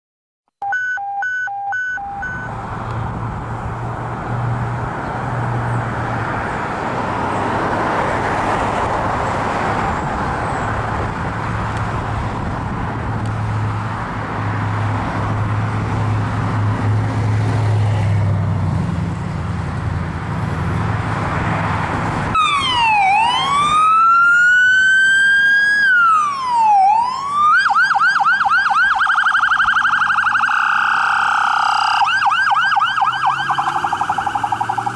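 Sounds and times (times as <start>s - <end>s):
electronic siren wailing: 0.6s - 2.5s, 22.4s - 34.9s
short electronic beeps: 0.6s - 2.5s
siren rapid yelp: 0.6s - 2.5s, 22.4s - 34.9s.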